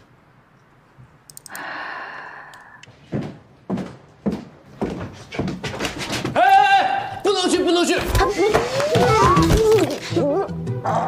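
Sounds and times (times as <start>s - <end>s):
footsteps on tiled floor: 2.9s - 6.4s.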